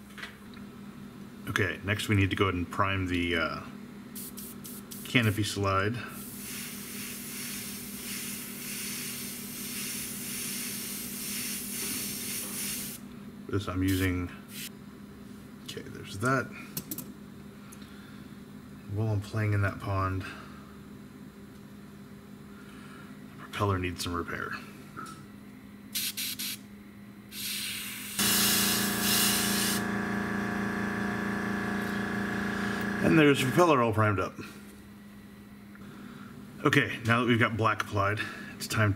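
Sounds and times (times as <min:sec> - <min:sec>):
airbrush spraying hiss: 0:04.2 - 0:05.1, 0:06.2 - 0:13.0, 0:14.5 - 0:14.7, 0:26.0 - 0:26.6, 0:27.3 - 0:29.8
air compressor motor humming: 0:27.4 - 0:33.9.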